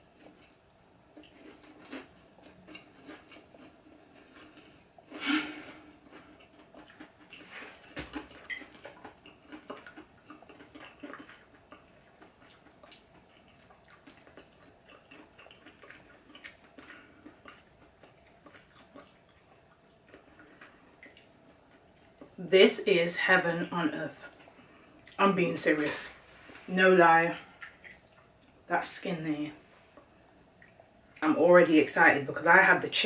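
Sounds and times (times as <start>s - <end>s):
chewing: 0.0s - 22.4s, 27.4s - 28.7s, 29.8s - 31.2s.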